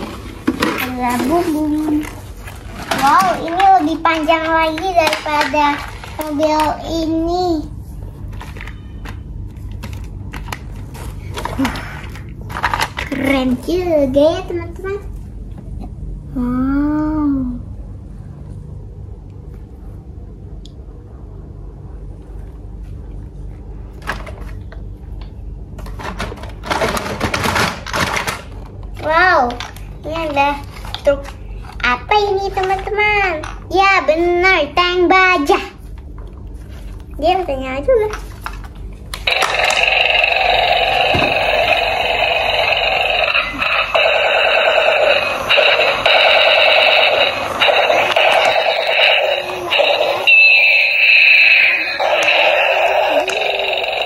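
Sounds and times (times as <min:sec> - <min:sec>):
plastic toys clattering: 0:00.0 - 0:06.9, 0:08.3 - 0:13.7, 0:25.8 - 0:31.8, 0:32.5 - 0:33.7, 0:39.3 - 0:40.2
low steady hum: 0:00.0 - 0:54.0
toy electronic sound effects: 0:39.3 - 0:54.0.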